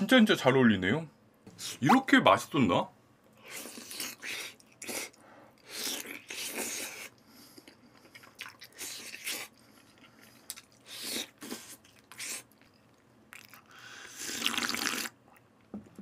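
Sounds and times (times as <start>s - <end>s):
man chewing wet smacks: 3.4s - 15.7s.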